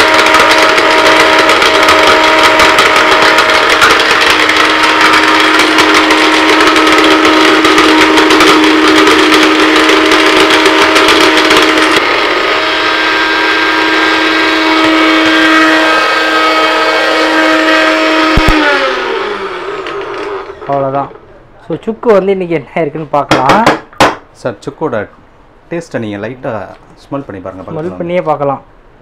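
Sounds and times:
mixer grinder motor whine: 0.0 - 21.2.

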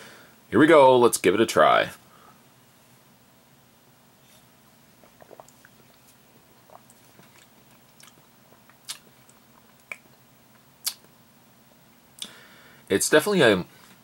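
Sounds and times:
sipping and swallowing: 4.9 - 11.0
lip smacks: 5.0 - 11.1.

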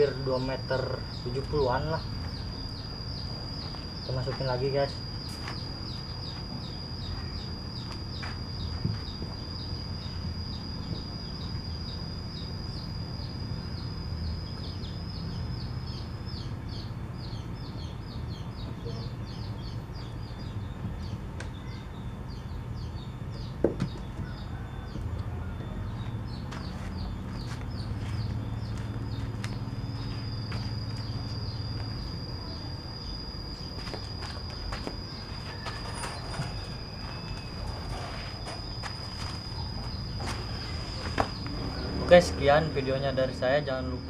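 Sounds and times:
low steady rumble: 0.0 - 44.0.

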